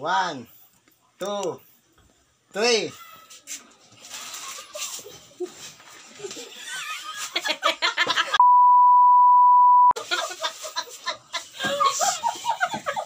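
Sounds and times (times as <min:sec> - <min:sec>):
people laughing: 0:04.5 - 0:08.4, 0:10.0 - 0:13.0
steady bleep tone: 0:08.4 - 0:10.0.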